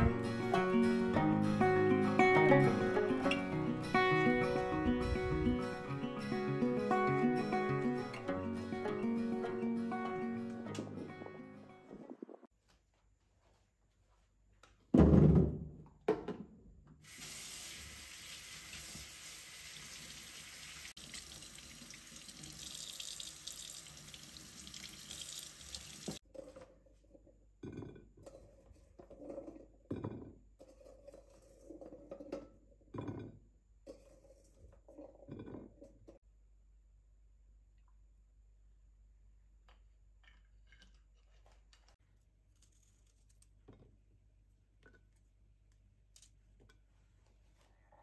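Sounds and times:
tap water running into sink: 17.1s - 26.2s.

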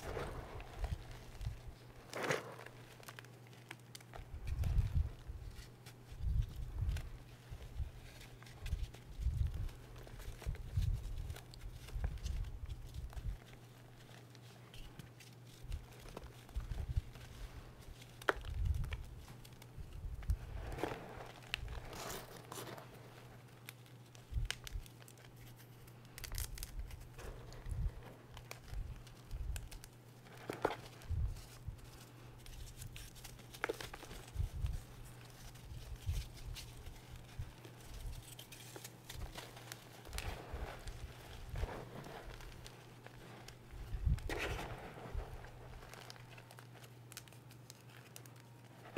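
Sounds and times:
chalk chunks crackling: 0.0s - 4.3s, 17.2s - 48.9s
chalk crunching and crumbling: 0.0s - 48.9s.

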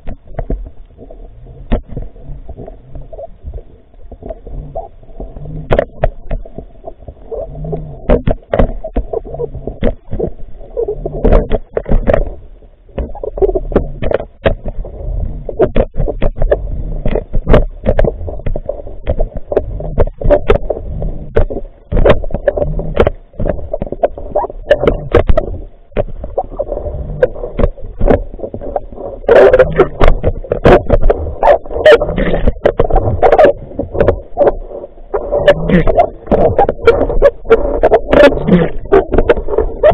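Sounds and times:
underwater rumble of moving water: 0.0s - 39.9s
sharp clicks and knocks: 1.7s - 2.1s, 7.8s - 10.4s, 11.1s - 12.4s, 13.0s - 14.9s, 15.5s - 20.7s, 21.3s - 26.4s.

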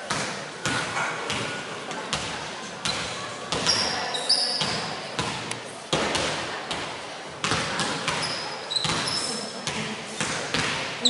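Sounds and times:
sneaker squeaks on floor: 2.8s - 5.4s, 7.4s - 10.7s
basketballs bouncing on hardwood: 7.4s - 10.9s.

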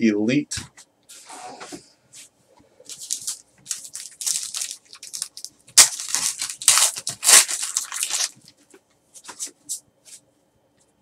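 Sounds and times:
foil wrapper crinkling and tearing: 2.9s - 8.6s.

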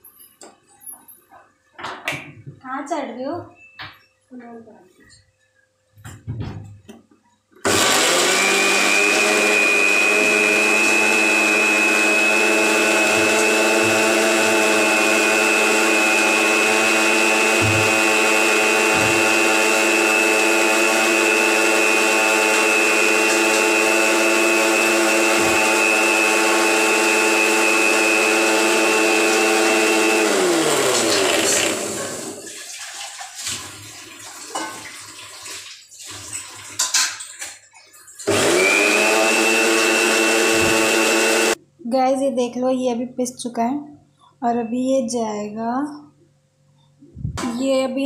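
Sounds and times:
mixer grinder motor whine: 7.6s - 32.5s, 38.2s - 41.6s.

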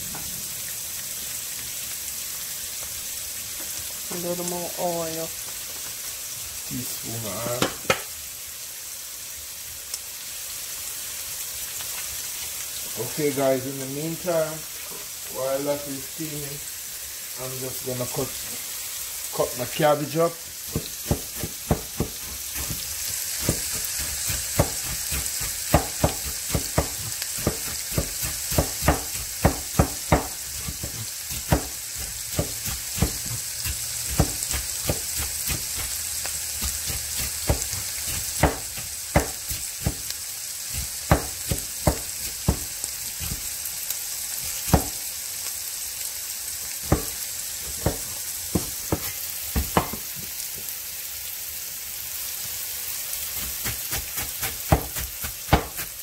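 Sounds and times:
vegetables sizzling in oil: 0.0s - 56.0s
knife chopping cabbage on wood: 20.7s - 22.8s, 23.4s - 36.0s, 36.6s - 40.0s, 40.8s - 43.4s, 44.7s - 45.0s, 46.9s - 50.0s, 53.4s - 56.0s.

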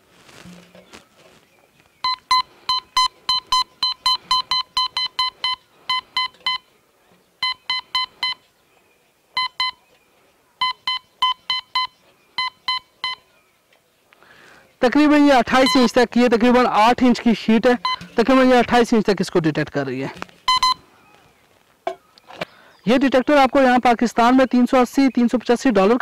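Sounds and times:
metal detector short beeps: 2.0s - 6.7s, 7.4s - 8.4s, 9.4s - 9.8s, 10.6s - 13.2s, 15.6s - 16.0s, 17.8s - 18.2s, 20.5s - 20.8s.

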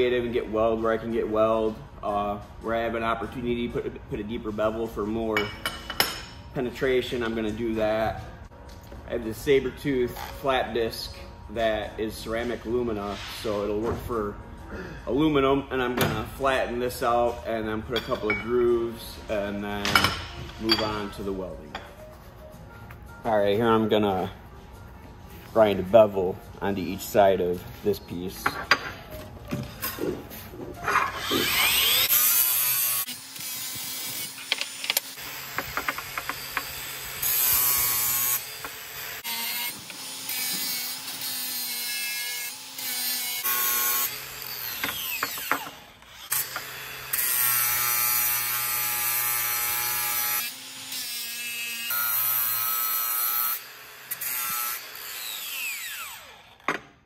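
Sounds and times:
angle grinder grinding metal: 30.8s - 56.7s.

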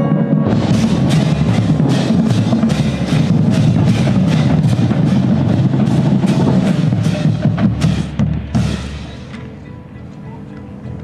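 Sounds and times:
marching drums playing: 0.0s - 9.4s.

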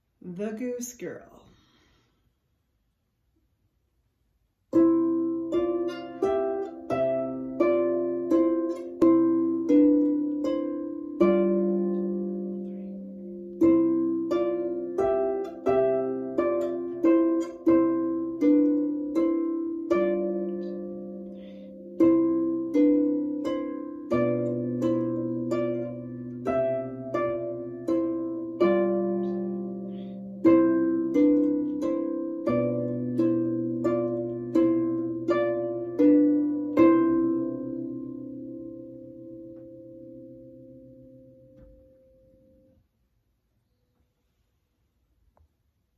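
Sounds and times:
harp playing: 4.7s - 42.7s.

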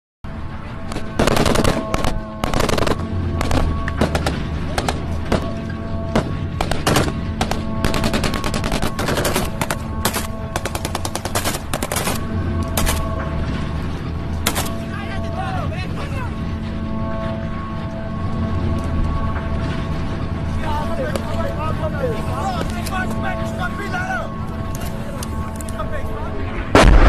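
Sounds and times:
assault rifles firing: 0.9s - 5.5s, 6.6s - 12.2s, 14.4s - 14.8s.

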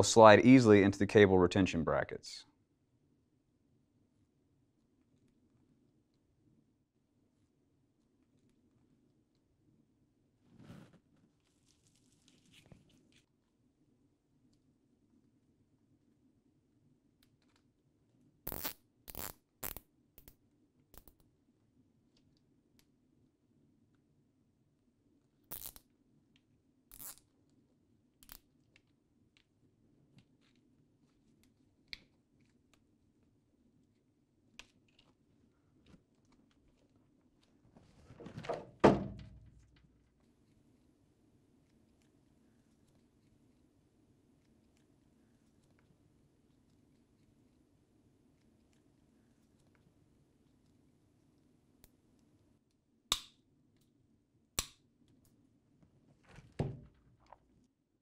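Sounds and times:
handling noise: 37.7s - 40.1s
sharp thunk: 38.3s - 39.6s
dull knock: 38.5s - 39.6s.

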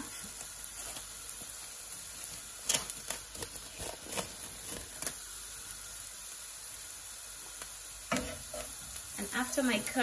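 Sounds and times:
cling film crackling: 0.0s - 5.8s
onions sizzling in oil: 0.0s - 10.0s.

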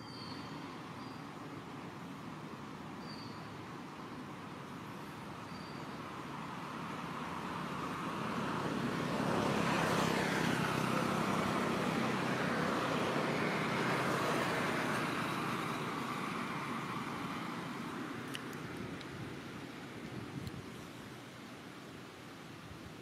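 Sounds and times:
motor vehicle passing by: 6.2s - 19.8s.

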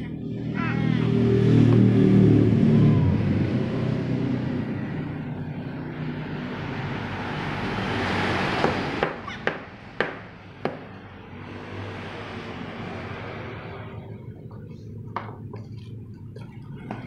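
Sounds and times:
low rumble of passing traffic: 0.0s - 17.0s
sharp knocks: 8.6s - 10.9s.

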